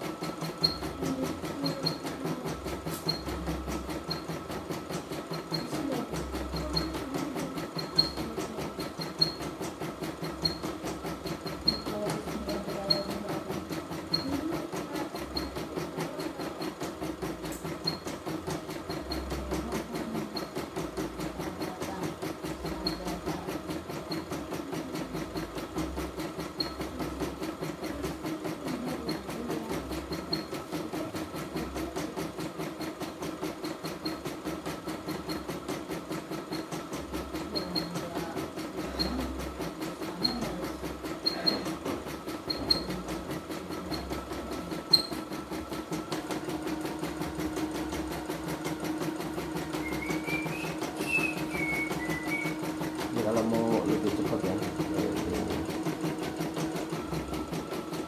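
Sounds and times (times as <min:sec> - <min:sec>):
embroidery machine needle strokes: 0:00.0 - 0:58.0
motor humming: 0:37.4 - 0:58.0.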